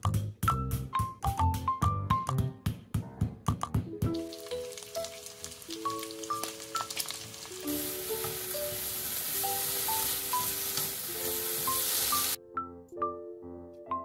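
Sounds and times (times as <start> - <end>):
slow background music: 0.4 - 14.0
vegetables sizzling in a frying pan: 4.2 - 12.4.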